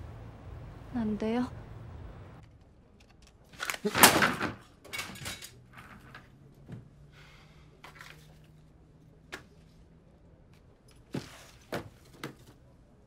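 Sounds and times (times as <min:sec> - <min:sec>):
low steady hum: 0:00.0 - 0:03.5.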